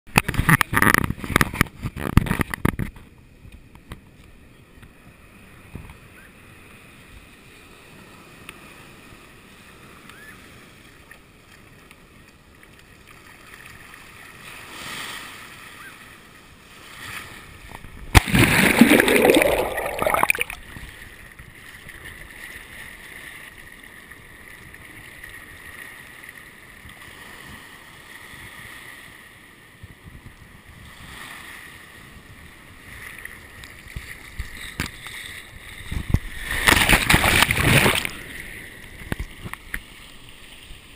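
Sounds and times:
muffled wash of water: 1.1 - 40.9
wave breaking over camera: 18.2 - 20.7.

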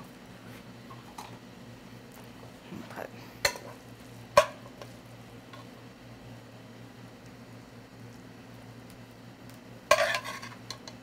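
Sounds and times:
spoon clinking and scraping pan: 9.9 - 11.0.

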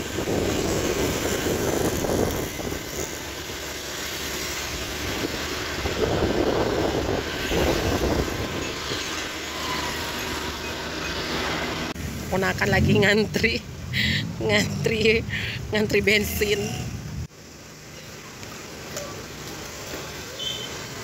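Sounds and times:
road and wind noise: 0.0 - 21.0.

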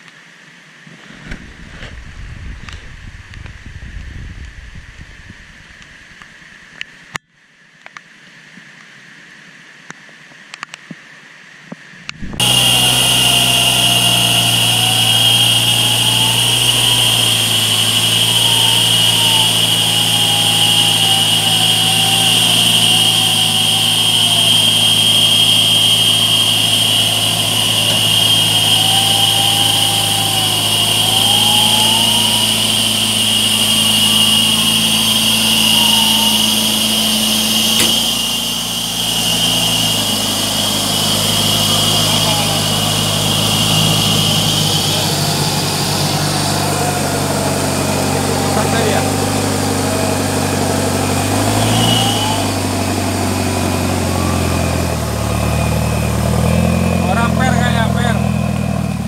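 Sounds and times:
high-pitched whine: 12.1 - 59.0
tone drifting up and down: 12.1 - 59.0
truck engine running: 12.2 - 59.0.

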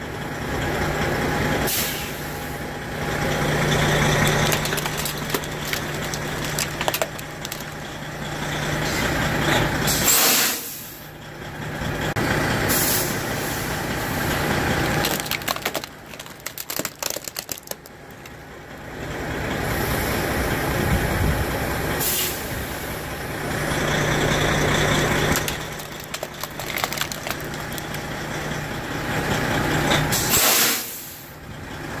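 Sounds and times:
diesel truck engine idling: 0.0 - 32.0
air brakes hissing: 1.6 - 2.6, 9.8 - 11.1, 12.6 - 14.3, 21.9 - 23.0, 30.0 - 31.4
television crushed under tyres: 4.1 - 7.8, 14.7 - 18.3, 25.3 - 28.1.

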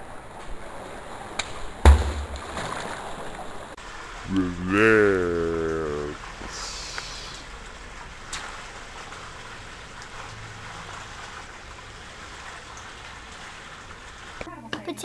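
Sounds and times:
pool water hissing: 3.7 - 14.5.

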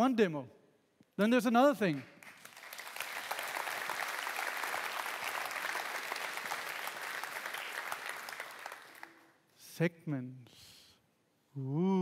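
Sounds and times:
audience applauding: 1.9 - 9.3.

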